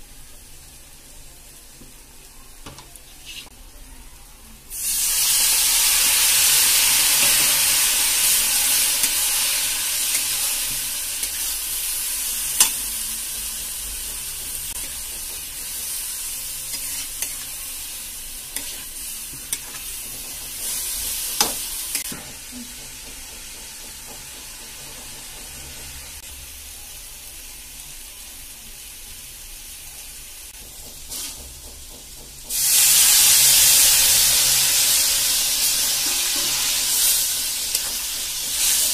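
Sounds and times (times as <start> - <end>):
loud sizzling: 4.7 - 22.7, 32.5 - 38.9.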